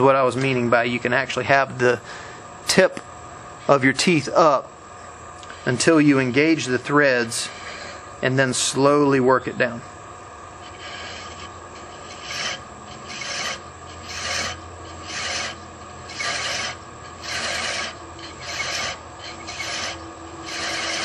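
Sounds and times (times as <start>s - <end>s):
lathe humming: 9.9s - 21.0s
chasing tool scraping wood: 10.6s - 21.0s.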